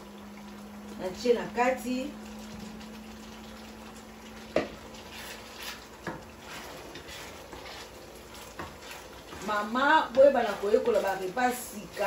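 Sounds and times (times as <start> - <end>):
shrimp sizzling in a wok: 4.5 - 12.0.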